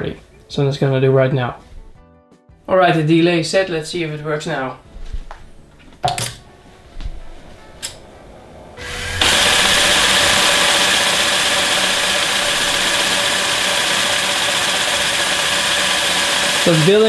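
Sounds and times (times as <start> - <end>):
electric air compressor running: 8.8 - 17.0.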